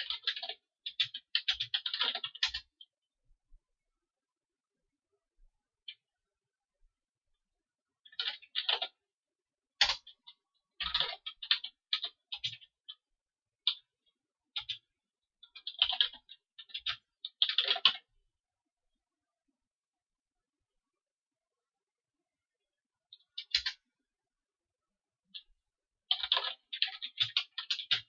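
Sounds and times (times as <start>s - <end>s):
computer keyboard typing: 0.0s - 2.9s, 8.0s - 9.0s, 9.8s - 13.0s, 14.5s - 18.1s, 23.1s - 23.8s, 26.1s - 28.0s.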